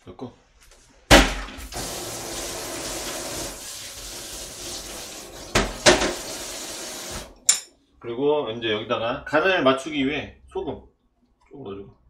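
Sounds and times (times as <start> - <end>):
kitchen tap running into sink: 1.5 - 7.5
water splashes: 1.7 - 7.4.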